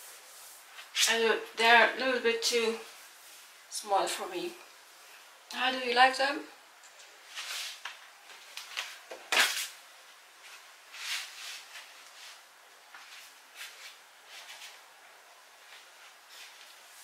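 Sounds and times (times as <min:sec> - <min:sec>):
clothing rustling: 0:07.1 - 0:17.0.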